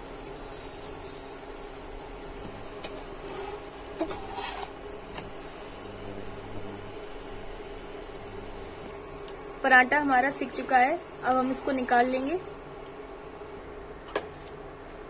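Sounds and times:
induction cooktop hum and whine: 0.0 - 15.0
spatula scraping a pan: 3.1 - 4.8.

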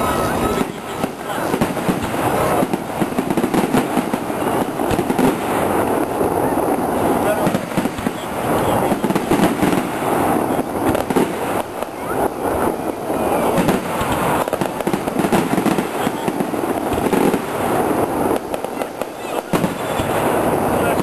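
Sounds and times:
fireworks bangs and crackling: 0.0 - 21.0.

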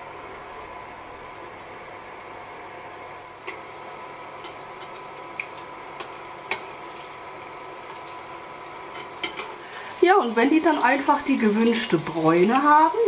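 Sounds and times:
deep-frying sizzle: 0.0 - 13.0.

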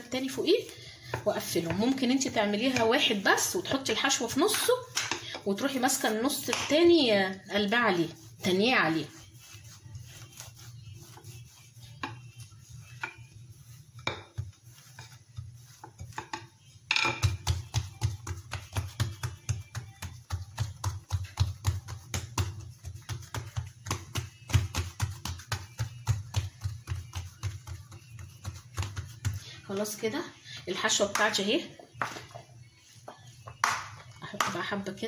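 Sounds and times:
hands patting bread dough: 0.1 - 30.2, 30.9 - 35.0.

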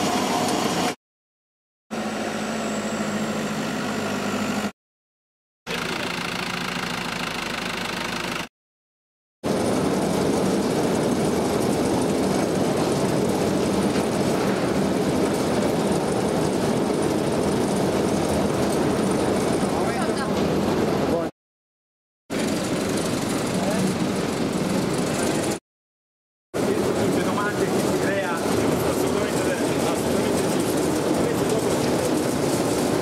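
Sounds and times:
vibrating trailer shaking grapes: 26.6 - 33.0.

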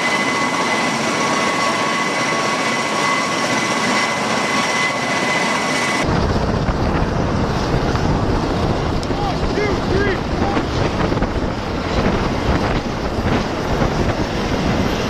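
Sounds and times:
high turbine whine: 0.0 - 15.0
rotor and engine noise: 0.0 - 15.0
rotor downwash buffeting microphone: 6.0 - 15.0.

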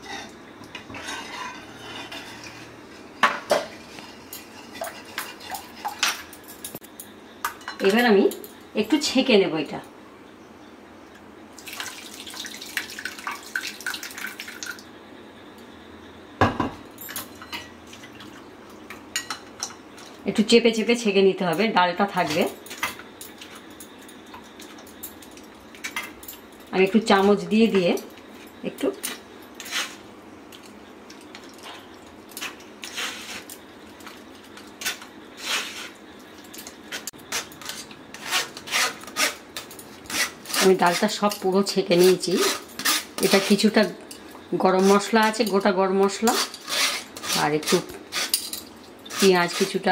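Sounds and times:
spoon scraping a mesh strainer: 32.4 - 33.6.

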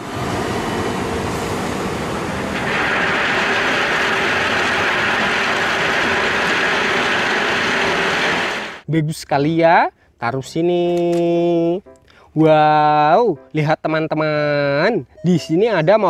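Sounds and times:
truck engine running: 0.0 - 8.8
crushed stone pouring out: 2.6 - 8.6.

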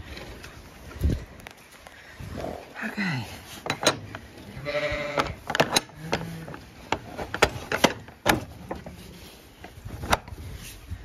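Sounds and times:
metal bolt clanking on wood: 3.6 - 9.0.

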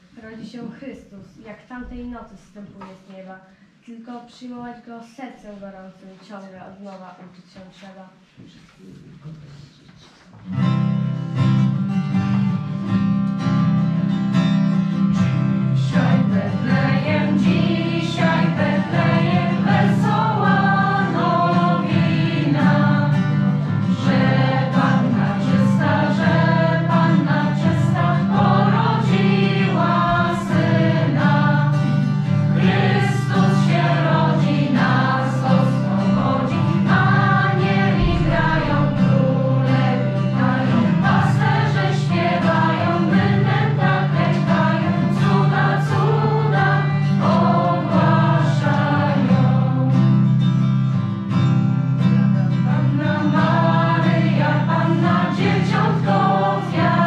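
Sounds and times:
acoustic guitar: 5.0 - 57.0
choir of young voices singing: 15.4 - 50.4, 52.7 - 57.0.

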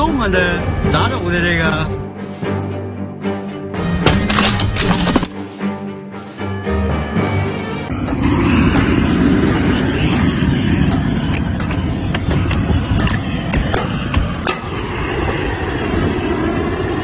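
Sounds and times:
steady low rumble: 7.9 - 17.0.

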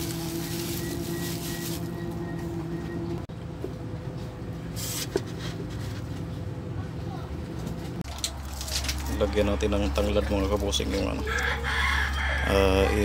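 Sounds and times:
plastic bag rustle: 0.0 - 2.0, 8.1 - 9.2
low mechanical hum: 0.0 - 13.0.

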